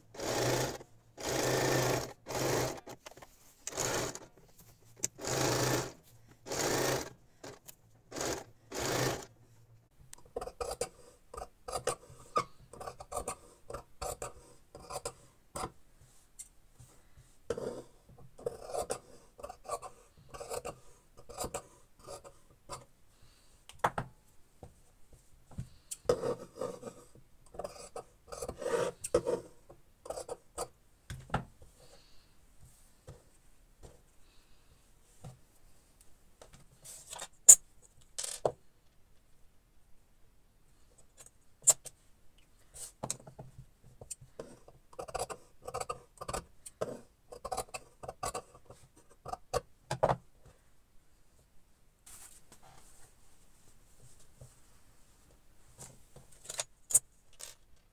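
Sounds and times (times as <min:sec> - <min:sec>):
sewing machine stitching: 0:00.1 - 0:04.4, 0:05.0 - 0:09.3
cloth rustling on table: 0:52.0 - 0:56.3.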